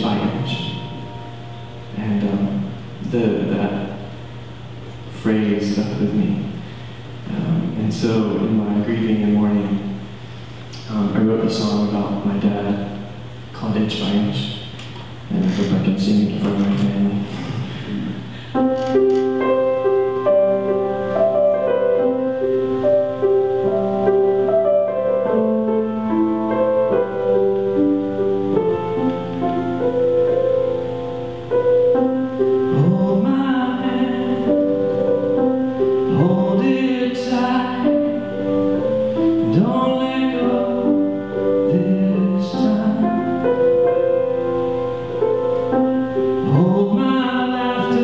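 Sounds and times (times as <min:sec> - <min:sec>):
piano chords: 0:00.0 - 0:48.0
man singing: 0:32.7 - 0:34.7, 0:36.1 - 0:38.3, 0:39.4 - 0:43.6, 0:46.4 - 0:48.0.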